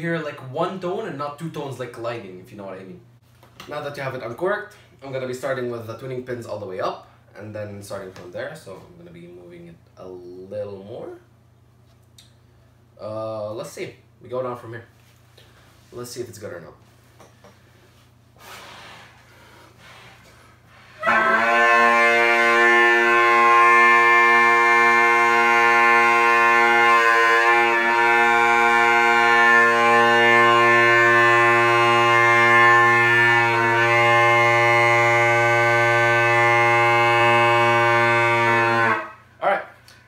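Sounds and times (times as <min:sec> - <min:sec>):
bagpipe drone: 0:21.0 - 0:39.2.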